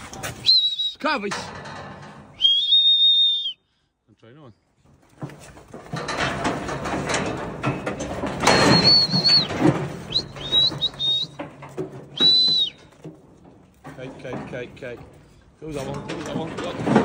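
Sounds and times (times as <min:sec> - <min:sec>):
knocks and rattling of metal crush: 0:00.0 - 0:03.0, 0:04.8 - 0:17.0
person whistling: 0:00.4 - 0:01.0, 0:02.4 - 0:03.7, 0:08.6 - 0:09.5, 0:10.1 - 0:11.4, 0:12.2 - 0:12.8.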